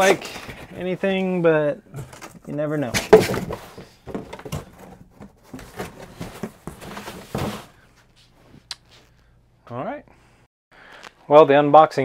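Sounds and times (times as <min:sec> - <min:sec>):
cardboard rustling and scraping: 0:00.0 - 0:08.1.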